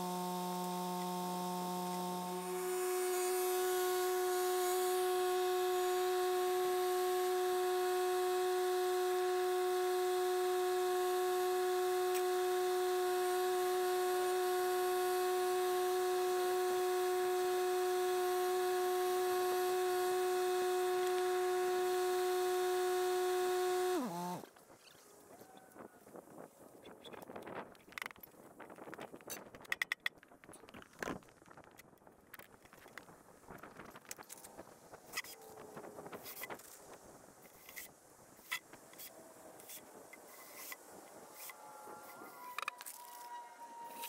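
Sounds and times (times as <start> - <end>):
motor whining: 0.0 - 25.8, 37.5 - 44.0.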